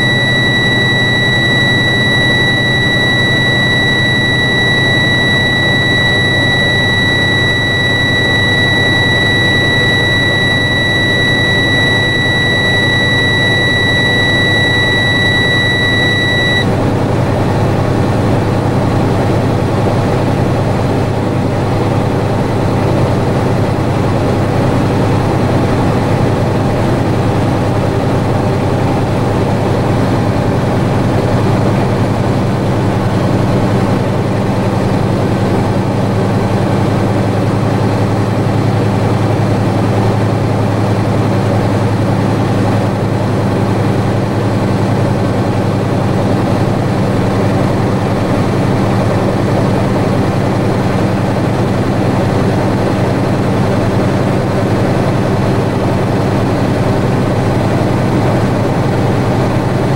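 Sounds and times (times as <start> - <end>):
high-pitched warning buzzer: 0.0 - 16.7.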